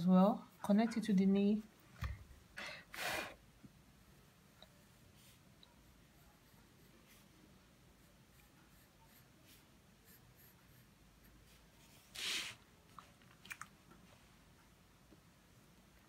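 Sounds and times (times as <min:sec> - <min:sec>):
pencil drawing on paper: 0:04.8 - 0:12.5
scratchy pencil sound: 0:07.9 - 0:12.6.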